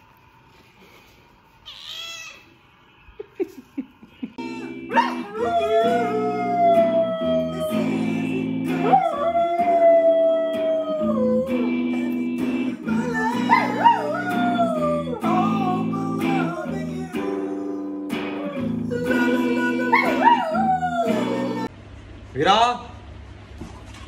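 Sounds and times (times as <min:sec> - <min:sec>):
dog howling: 0:04.4 - 0:21.7
electric guitar strumming: 0:04.4 - 0:21.7.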